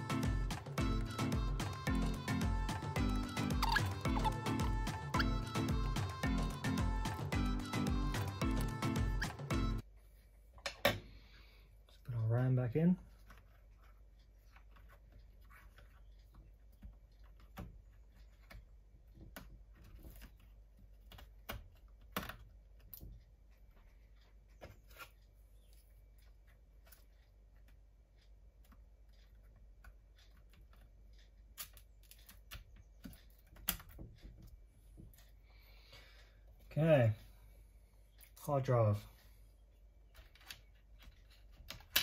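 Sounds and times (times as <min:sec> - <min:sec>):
fingers clicking on laptop parts: 0:13.1 - 0:35.4, 0:40.0 - 0:42.0.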